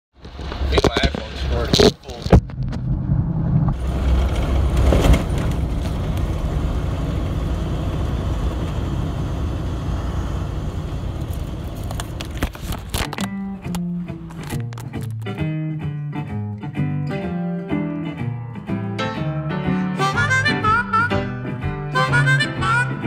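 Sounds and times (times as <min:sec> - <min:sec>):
road noise: 0:00.2 - 0:15.4
bus engine running: 0:03.2 - 0:14.8.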